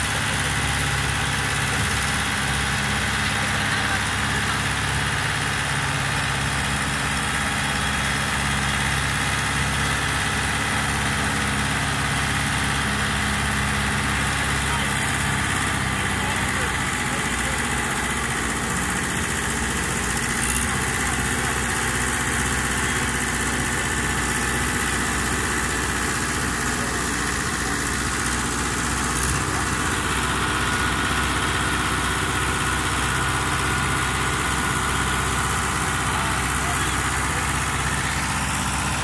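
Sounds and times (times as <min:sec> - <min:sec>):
tractor diesel engine running: 0:00.0 - 0:39.0.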